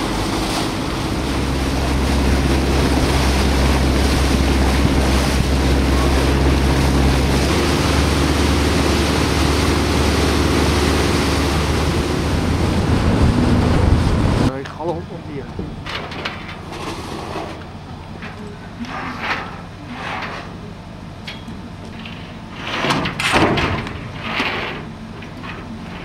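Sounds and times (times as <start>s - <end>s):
wind on microphone: 0.0s - 14.5s
motorboat engine drone: 0.0s - 26.0s.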